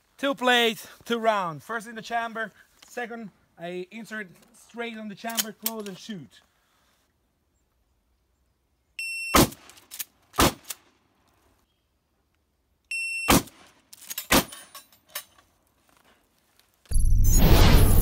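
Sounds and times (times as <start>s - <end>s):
shotgun pump being worked: 5.2s - 6.0s
shotgun shots: 9.4s - 9.7s, 10.4s - 10.7s, 13.3s - 13.6s, 14.3s - 14.5s.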